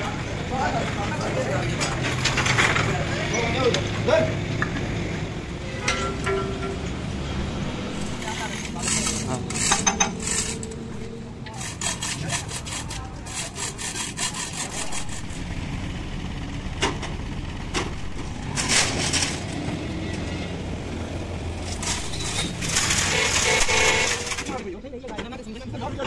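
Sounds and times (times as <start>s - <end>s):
chain hoist clicking and rattling: 8.0s - 15.5s, 21.6s - 24.6s.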